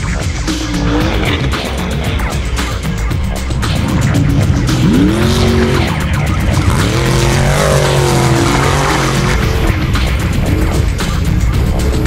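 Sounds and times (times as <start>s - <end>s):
engine revving hard: 0.5s - 2.4s, 3.6s - 10.2s.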